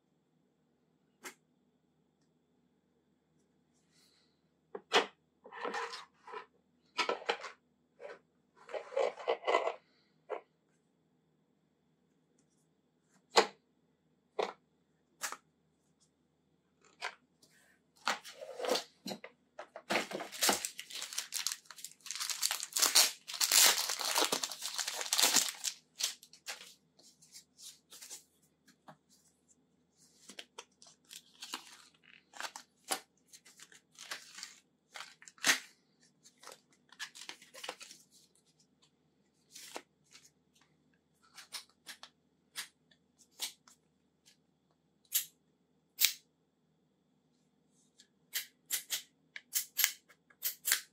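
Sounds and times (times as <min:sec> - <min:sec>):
packaging tearing and crinkling: 0:20.2 - 0:26.6.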